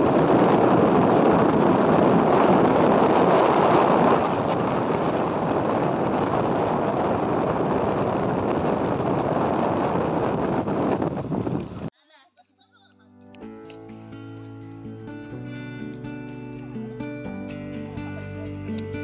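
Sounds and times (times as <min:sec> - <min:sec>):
wind on microphone: 0:00.0 - 0:11.9.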